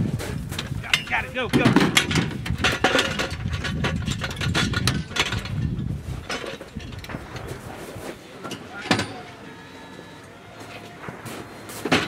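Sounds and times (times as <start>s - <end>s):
metal clanks and rattles: 0.2s - 9.4s.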